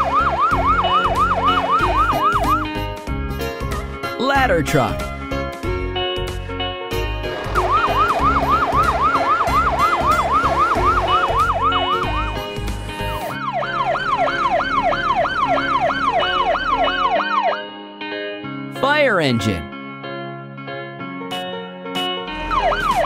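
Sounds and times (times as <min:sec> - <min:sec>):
electronic yelp siren: 0:00.0 - 0:02.7, 0:07.4 - 0:12.6, 0:13.2 - 0:17.7, 0:22.4 - 0:23.0.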